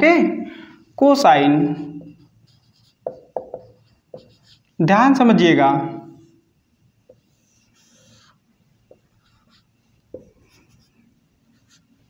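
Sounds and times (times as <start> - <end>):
marker rubbing on whiteboard: 1.4 - 4.8, 7.1 - 12.0.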